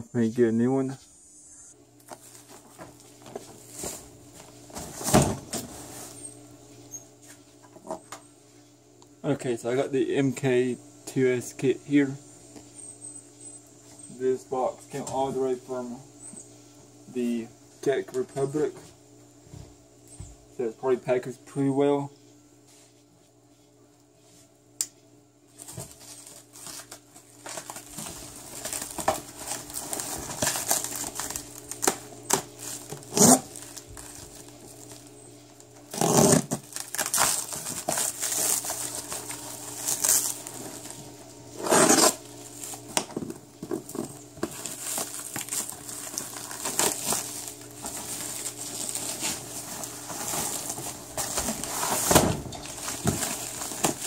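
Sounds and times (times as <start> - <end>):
knife cutting plastic wrap: 25.6 - 35.0, 35.9 - 41.0, 41.6 - 42.9, 43.7 - 54.0
plastic wrap ripping: 25.6 - 35.1, 35.8 - 41.0, 43.7 - 54.0
plastic crinkling: 25.6 - 41.2, 41.9 - 54.0.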